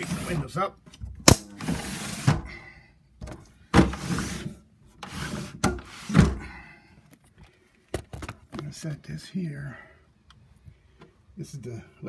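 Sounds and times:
window sash scraping: 0:00.0 - 0:00.6, 0:01.5 - 0:02.6, 0:03.8 - 0:06.5.

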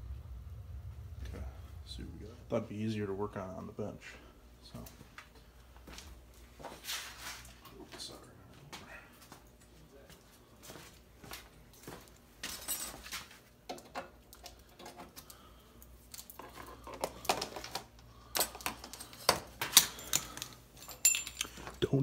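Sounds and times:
metal parts clinking on workbench: 0:18.3 - 0:21.8.

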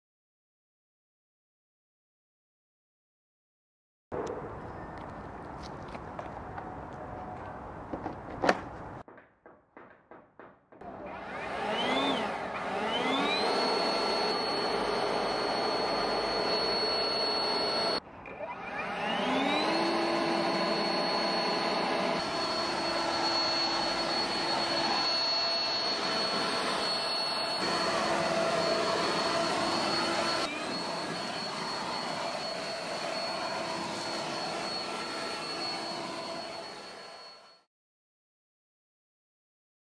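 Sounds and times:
leaf blower motor whine: 0:10.8 - 0:37.7.

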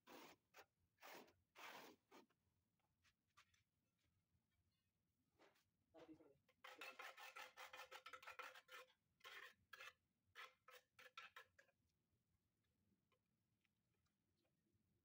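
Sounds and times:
trowel scraping tile adhesive: 0:00.0 - 0:02.3, 0:06.6 - 0:11.8.

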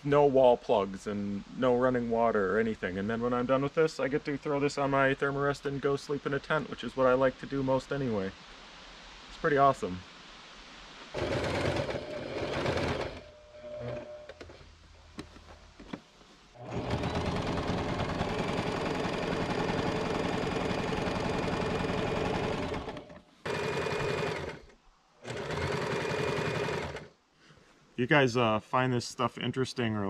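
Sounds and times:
sewing machine stitching: 0:11.2 - 0:14.5, 0:16.6 - 0:27.1.

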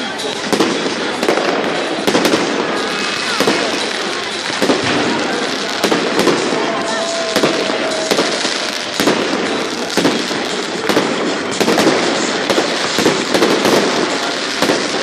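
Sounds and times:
fireworks bangs and crackling: 0:00.0 - 0:15.0.

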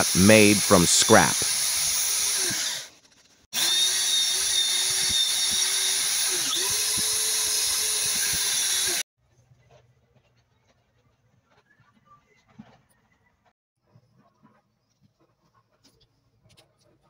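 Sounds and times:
electric drill motor hum: 0:01.3 - 0:02.9, 0:03.6 - 0:09.0.

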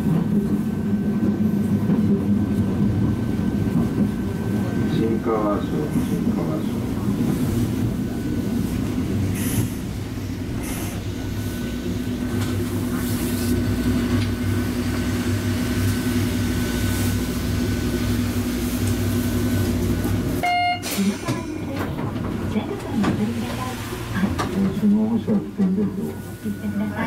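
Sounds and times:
tram wheels rumbling: 0:00.0 - 0:27.0
short tone: 0:20.4 - 0:21.0.

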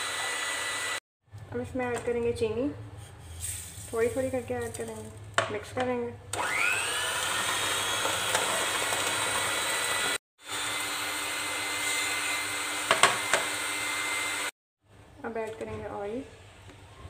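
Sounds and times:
electric hand mixer whisking: 0:00.0 - 0:01.0, 0:06.4 - 0:14.5.

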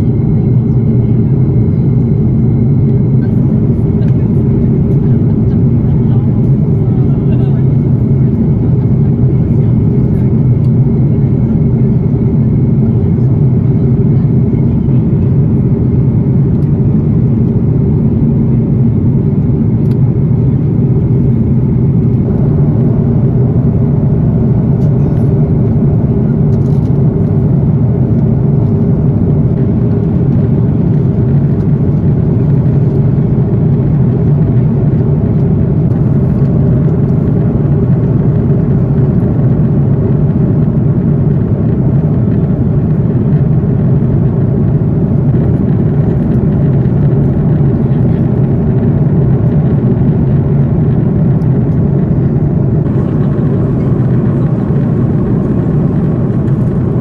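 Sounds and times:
jet engines rumbling: 0:00.0 - 0:57.0
airflow around fuselage: 0:00.1 - 0:57.0.

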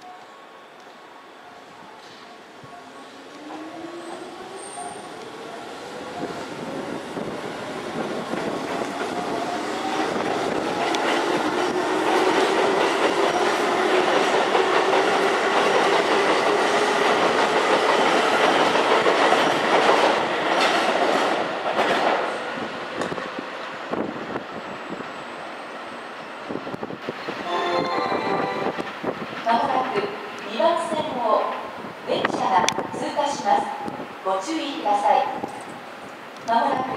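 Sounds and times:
train wheels rumbling on rails: 0:03.4 - 0:25.1.

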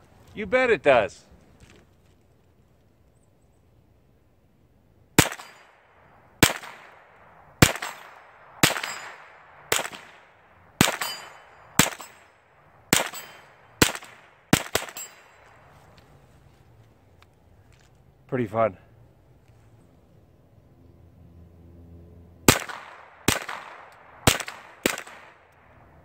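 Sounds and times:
rifle shots echoing: 0:05.2 - 0:15.7, 0:22.4 - 0:26.0.

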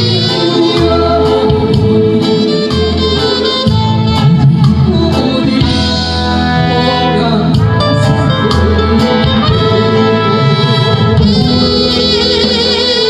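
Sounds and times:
man singing into a microphone: 0:00.0 - 0:11.3
amplified instrumental accompaniment: 0:00.0 - 0:13.0.

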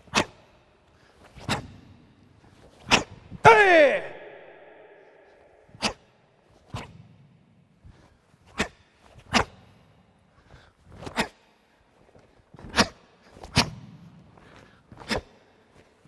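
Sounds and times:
short swish: 0:05.6 - 0:07.1.

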